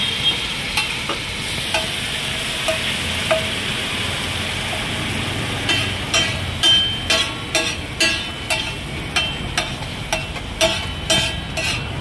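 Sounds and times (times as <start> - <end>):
food sizzling in oil: 0.0 - 12.0
spatula scraping and knocking pan: 5.5 - 12.0.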